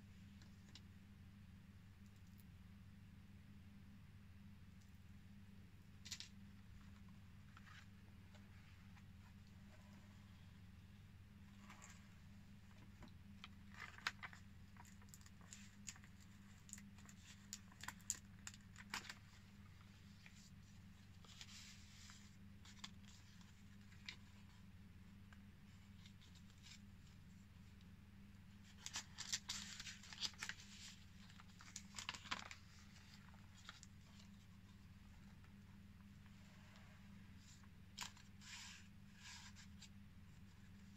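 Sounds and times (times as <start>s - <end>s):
paper pages rustling: 6.0s - 10.2s, 11.6s - 24.6s, 28.6s - 35.6s, 37.3s - 40.9s.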